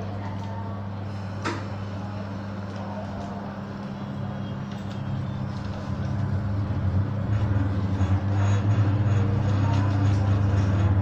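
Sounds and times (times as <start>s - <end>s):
train motor hum: 0.0s - 11.0s
train rolling noise: 4.6s - 11.0s.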